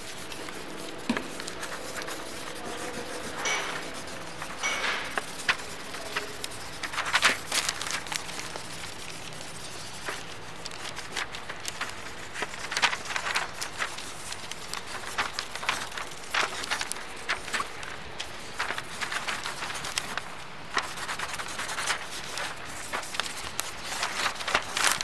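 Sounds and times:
hands handling paper: 0.0 - 25.0.

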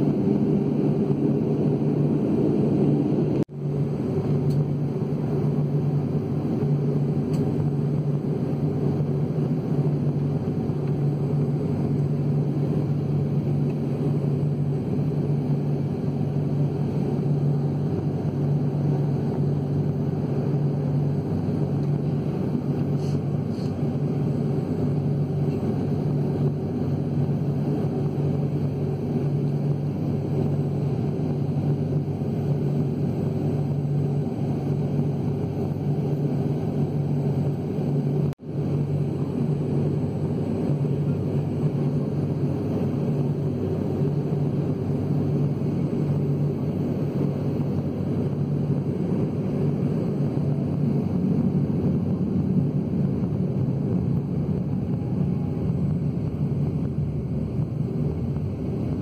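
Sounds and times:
airliner cabin drone: 0.0 - 59.0.

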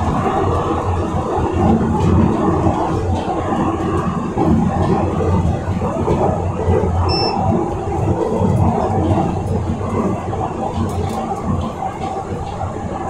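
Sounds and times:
subway train rumbling: 0.0 - 13.0
short high beep: 7.1 - 7.4.

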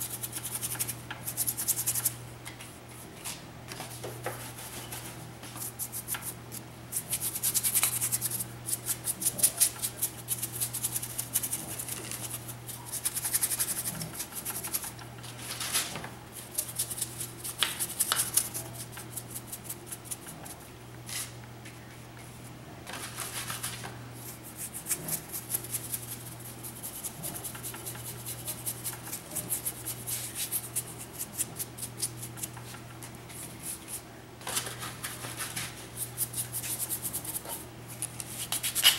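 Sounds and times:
steady low hum: 0.0 - 38.9
paintbrush scrubbing concrete: 5.6 - 14.8, 24.3 - 32.5, 36.0 - 37.6.

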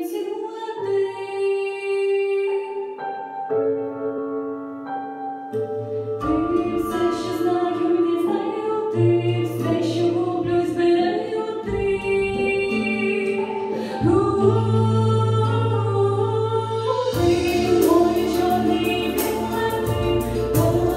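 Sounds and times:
woman singing a pop ballad: 0.0 - 3.3, 6.2 - 20.9
instrumental backing track: 2.9 - 20.9
bass line: 6.2 - 7.9, 14.0 - 20.9.

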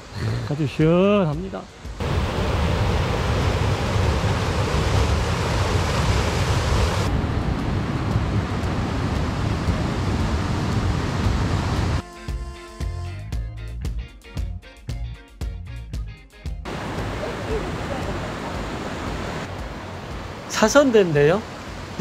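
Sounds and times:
stream rushing over rocks: 2.0 - 7.2, 8.5 - 12.0, 16.7 - 22.0.

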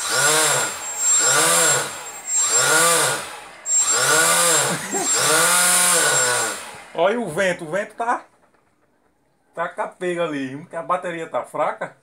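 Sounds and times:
electric fan motor whine: 0.0 - 7.2.

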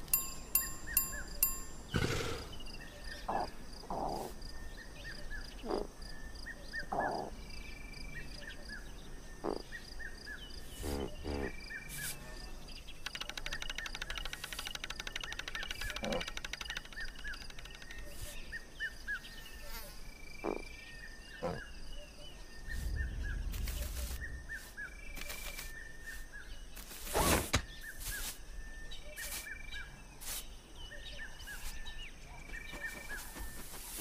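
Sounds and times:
insect-like trill: 0.0 - 2.6
small birds chirping: 0.0 - 34.0
scattered clicks: 13.0 - 18.2.

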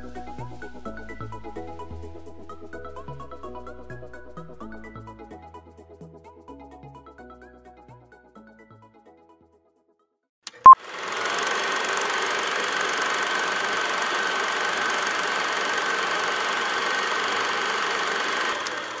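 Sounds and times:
click: 10.5 - 10.8, 18.6 - 18.8
small engine running: 10.7 - 19.0.

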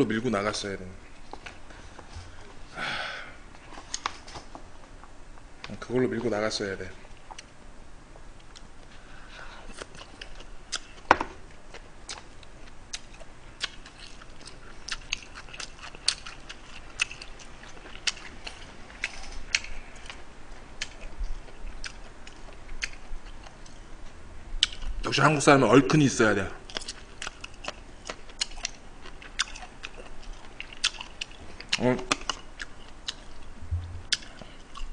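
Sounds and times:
chewing and biting food: 9.7 - 23.8, 26.7 - 34.9.

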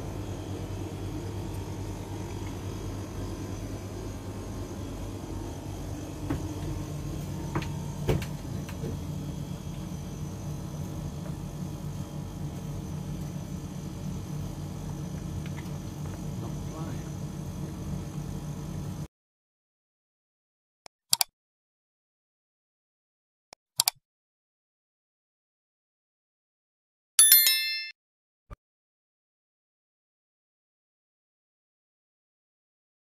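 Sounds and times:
low machinery hum: 0.0 - 19.1.

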